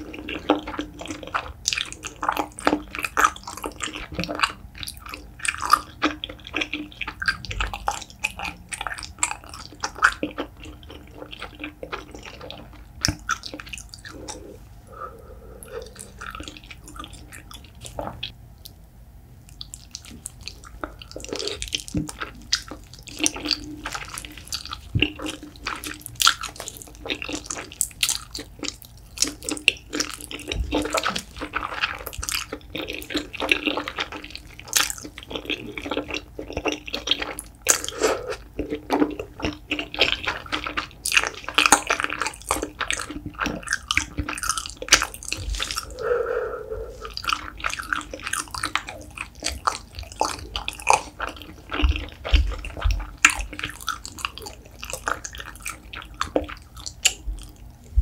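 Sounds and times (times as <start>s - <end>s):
wet chewing: 0.0s - 18.8s, 19.4s - 58.0s.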